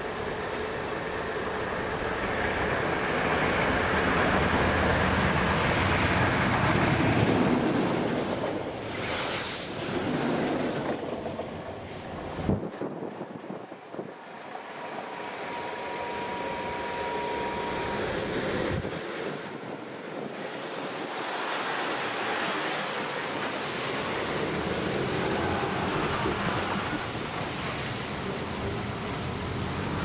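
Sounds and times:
wind on the microphone: 0:10.2 - 0:14.4
thin steady high tone: 0:15.0 - 0:18.8.

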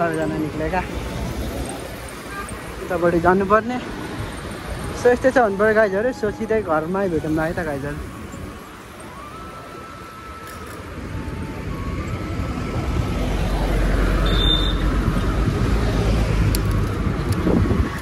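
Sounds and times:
road traffic: 0:00.0 - 0:18.0
wind rumbling on microphone: 0:03.8 - 0:18.0.

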